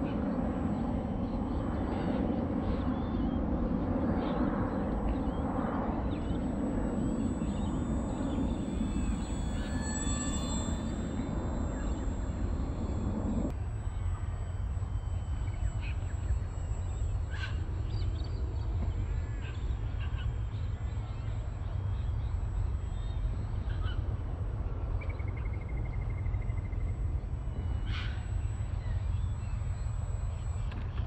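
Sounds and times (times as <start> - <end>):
wind rumble on microphone: 0.0 - 14.1
birds chirping: 2.7 - 23.4
bird trill: 2.7 - 24.0.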